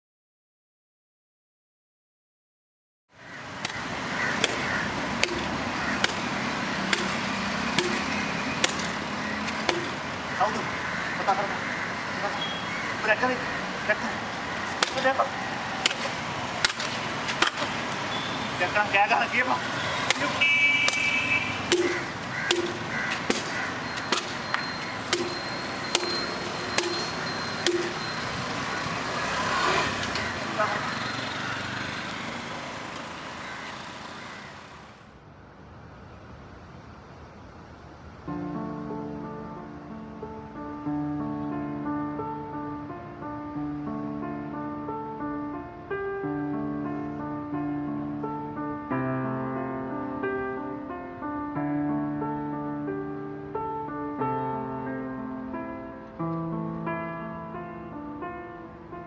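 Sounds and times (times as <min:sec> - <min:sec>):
road ambience hiss: 0:03.2 - 0:46.1
wooden stick striking asphalt: 0:03.6 - 0:10.0, 0:14.7 - 0:15.2, 0:15.8 - 0:18.0, 0:20.0 - 0:28.0
sharp rhythmic clicks: 0:20.0 - 0:21.1, 0:21.7 - 0:28.2.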